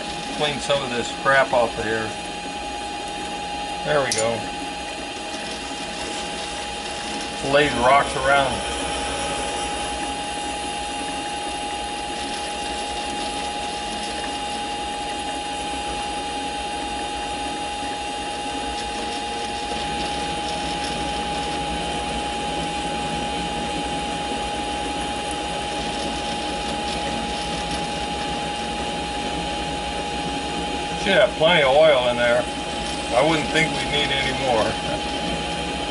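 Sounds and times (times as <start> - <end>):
lathe whining: 0.0 - 35.9
tool cutting steel rod: 4.0 - 4.4.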